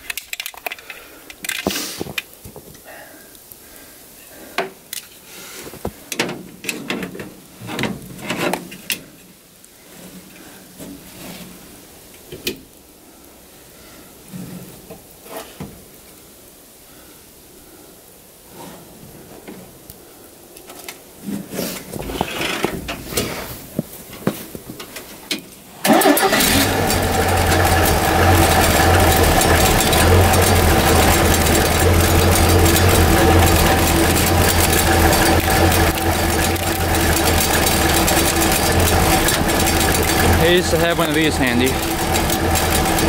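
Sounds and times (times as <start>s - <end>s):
engine starting and running: 25.8s - 43.0s
knocks and clatter: 27.3s - 43.0s.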